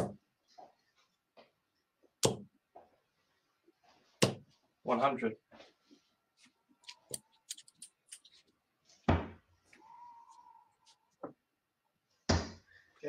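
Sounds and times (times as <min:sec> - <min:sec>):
darts thudding into dartboard: 0:04.2 - 0:04.5, 0:09.1 - 0:09.4, 0:12.3 - 0:12.6.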